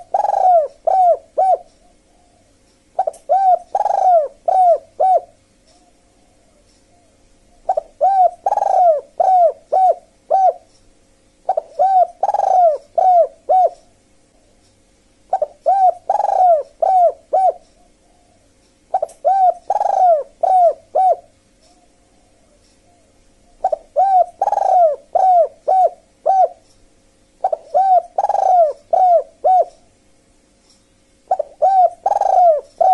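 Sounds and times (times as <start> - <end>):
dove cooing: 0.0 - 10.7, 11.4 - 14.5, 15.3 - 26.7, 27.4 - 30.0, 31.3 - 32.9.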